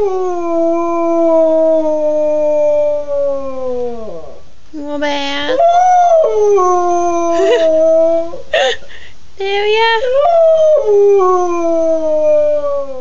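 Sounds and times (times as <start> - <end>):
dog howling: 5.5 - 8.4, 10.1 - 13.0.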